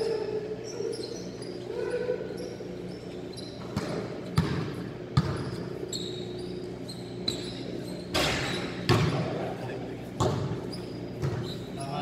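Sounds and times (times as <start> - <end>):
low hum of hall: 0.0 - 12.0
basketballs bouncing on court floor: 3.6 - 6.4, 8.0 - 12.0.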